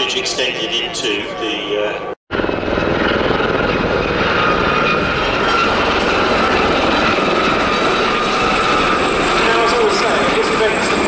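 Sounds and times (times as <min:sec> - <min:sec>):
helicopter rotor chop: 0:02.3 - 0:11.0.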